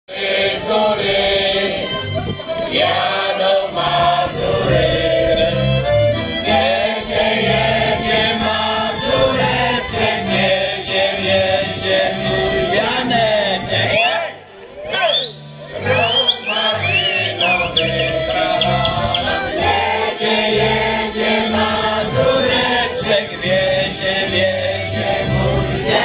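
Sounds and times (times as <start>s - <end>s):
mixed choir singing: 0.1s - 14.5s, 15.7s - 26.0s.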